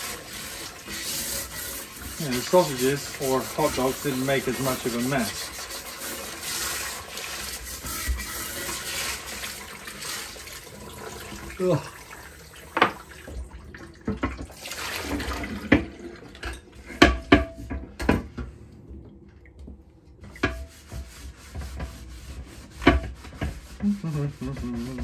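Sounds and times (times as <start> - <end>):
scrubbing a grill plate: 0.0 - 10.7, 20.2 - 25.0
tap water running: 0.0 - 25.0.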